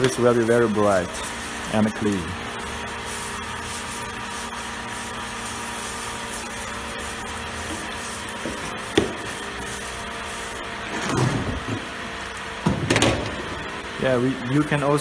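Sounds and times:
brush scrubbing wet metal plate: 0:00.0 - 0:11.6
steady hum: 0:00.0 - 0:15.0.

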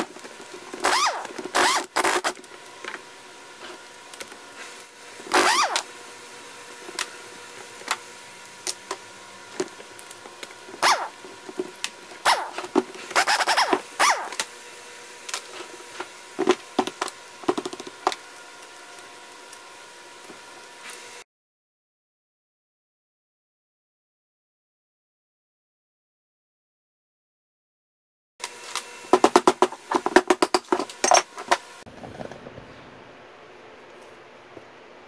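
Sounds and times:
impact driver whirring: 0:00.7 - 0:02.4, 0:05.3 - 0:05.9, 0:10.8 - 0:11.2, 0:12.2 - 0:14.5.

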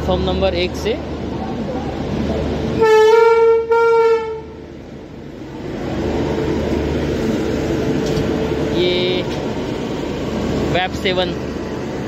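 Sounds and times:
train rumbling: 0:00.0 - 0:12.0
train horn blasts: 0:02.8 - 0:04.6.

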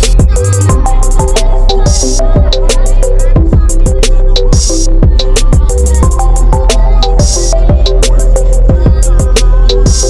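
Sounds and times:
electronic music with drum beat: 0:00.0 - 0:10.0.

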